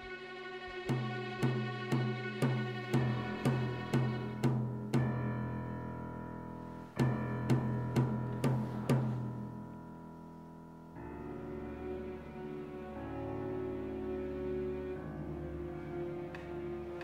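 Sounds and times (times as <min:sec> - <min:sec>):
low bowed strings: 0:00.0 - 0:05.8.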